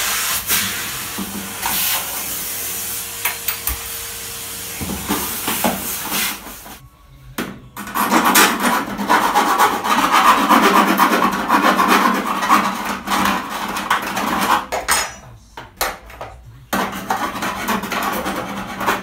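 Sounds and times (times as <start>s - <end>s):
hand file rasping on sheet steel: 7.8s - 14.6s, 16.8s - 19.0s.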